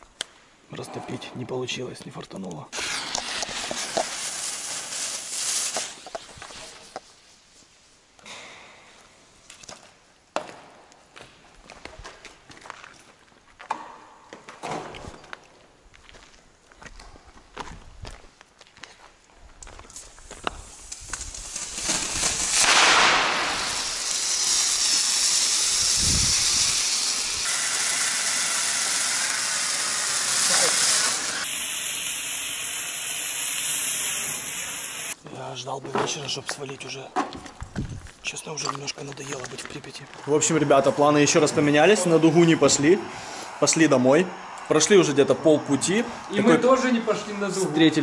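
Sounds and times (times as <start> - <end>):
hand flare hissing: 20.6 - 35.2.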